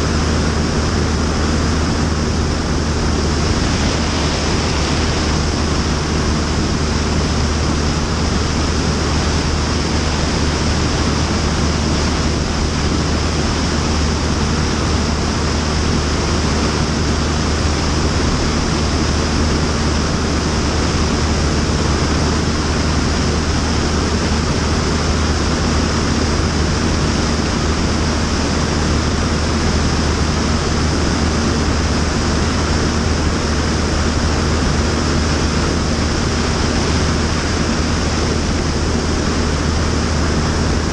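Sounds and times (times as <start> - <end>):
plane engine and propeller droning: 0.0 - 40.9
wind rushing: 2.2 - 7.4.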